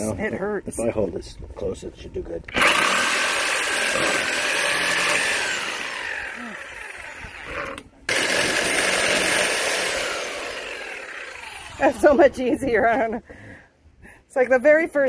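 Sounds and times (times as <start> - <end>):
electric cutter motor cutting: 2.5 - 12.1.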